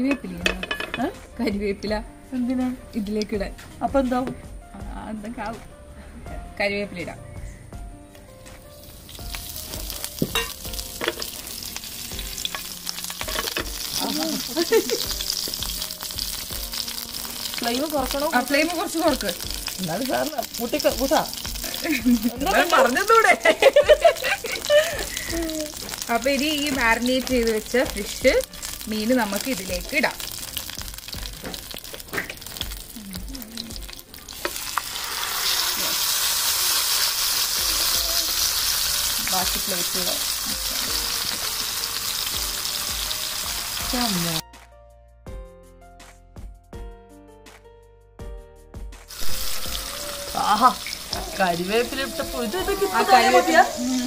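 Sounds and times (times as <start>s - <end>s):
leaves sizzling in hot oil: 0.0s - 4.3s, 8.6s - 44.4s, 49.1s - 54.0s
oil crackling with clicks: 23.7s - 35.0s.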